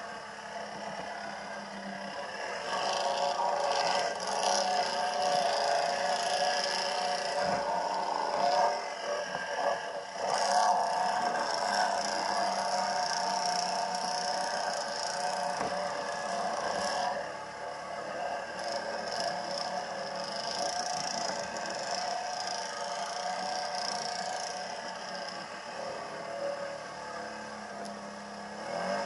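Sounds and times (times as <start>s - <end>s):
quad engine running: 0.0s - 29.0s.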